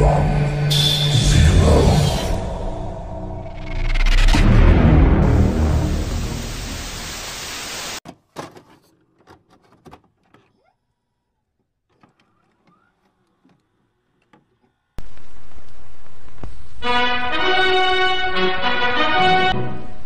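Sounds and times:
loud burst of static: 4.3 - 8.0
noise hiss: 5.2 - 8.0.

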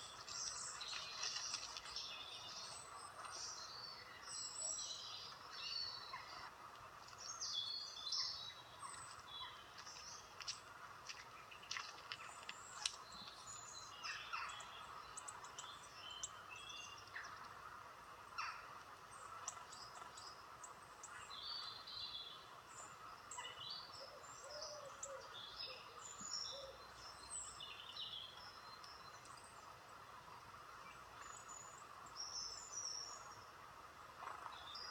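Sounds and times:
small birds chirping: 0.0 - 17.6.

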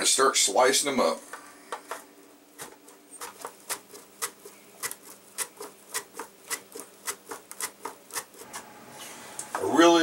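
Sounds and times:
banana sliced on mandoline: 2.6 - 8.7.

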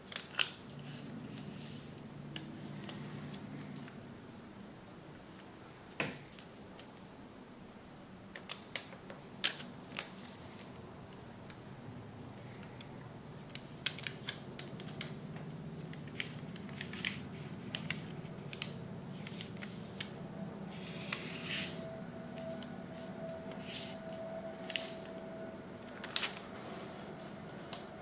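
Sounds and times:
paper being folded: 0.0 - 7.1, 13.4 - 25.2, 25.8 - 27.9
faint steady hum: 0.0 - 28.0
paper rustling: 13.5 - 21.8, 22.4 - 25.2, 25.9 - 27.9.

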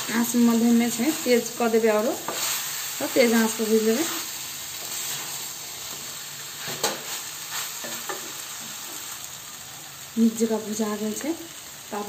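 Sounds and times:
vegetables sizzling in oil: 0.0 - 12.0
spatula scraping pan: 1.0 - 8.4.

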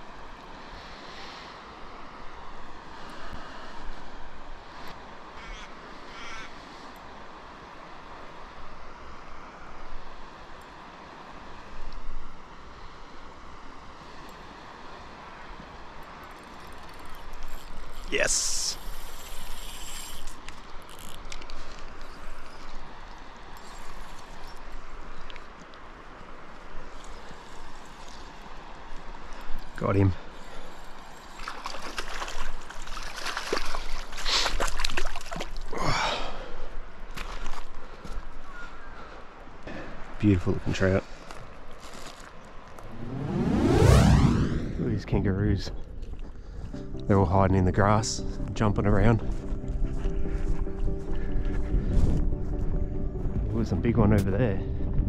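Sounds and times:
water splashing: 31.3 - 35.8
breathy sigh: 35.7 - 36.6
wind buffeting microphone: 42.8 - 47.0, 49.2 - 55.0.

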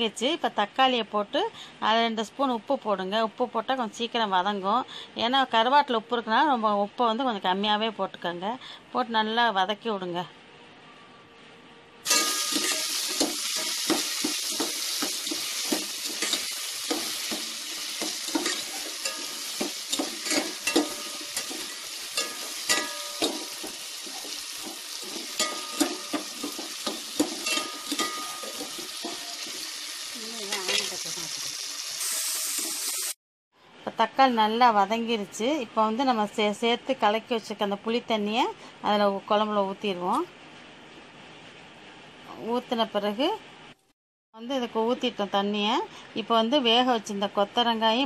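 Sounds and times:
vegetables sizzling in oil: 12.0 - 33.2
metal ladle scraping pot: 12.1 - 29.7.

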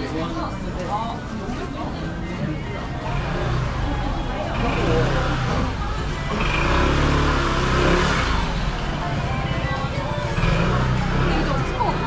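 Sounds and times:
music playing: 0.0 - 12.0
motor scooter engine running: 3.1 - 12.0.

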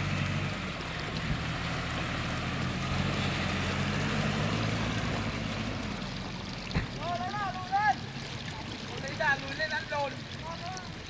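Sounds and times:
car engine running at low revs: 0.0 - 7.1
rushing water: 0.0 - 11.0
wheels splashing through water: 0.0 - 11.0.

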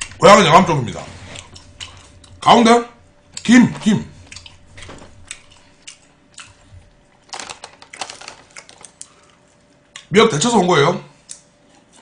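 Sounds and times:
chewing with wet clicks: 1.4 - 2.4, 4.2 - 7.2, 7.8 - 10.1, 11.2 - 12.0.

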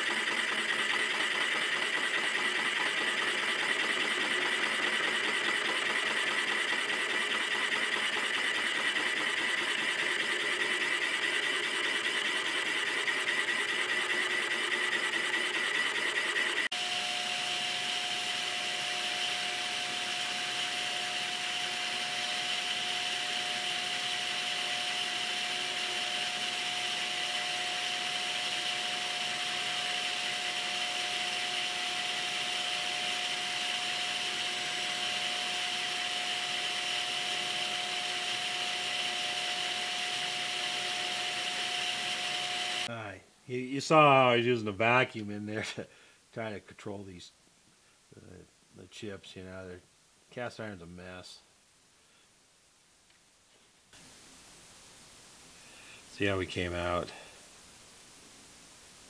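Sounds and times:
milling machine cutting metal: 0.0 - 42.9
shop vacuum running: 0.0 - 42.9.

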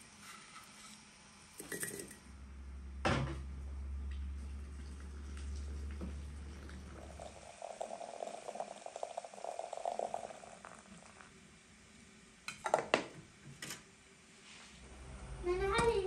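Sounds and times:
liquid gurgling: 4.3 - 11.4.

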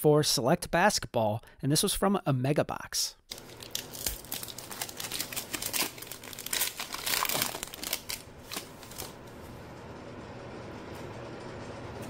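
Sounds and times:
foil wrapper crinkling: 3.3 - 9.4.

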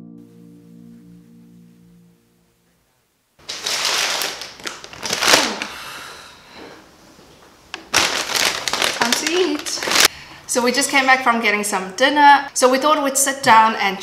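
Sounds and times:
paper bag rustling: 3.4 - 5.7, 7.7 - 10.1.

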